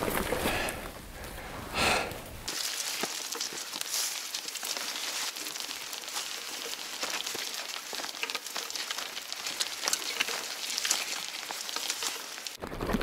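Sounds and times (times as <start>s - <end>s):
tyres and footsteps squelching in mud: 0.0s - 12.7s.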